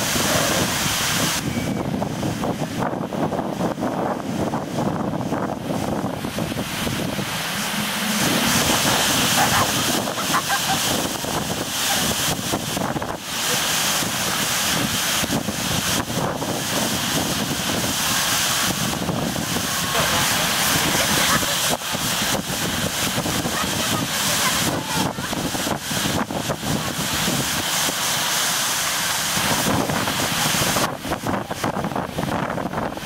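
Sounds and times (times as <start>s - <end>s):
strong gusty wind on microphone: 0.0s - 33.0s.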